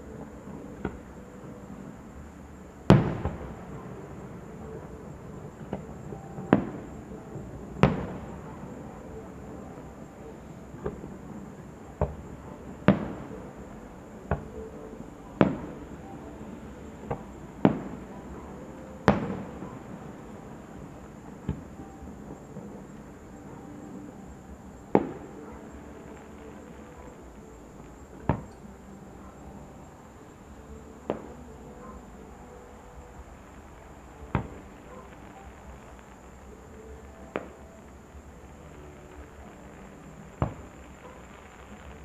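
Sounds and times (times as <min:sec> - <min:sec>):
firework shells bursting: 0:38.8 - 0:42.0.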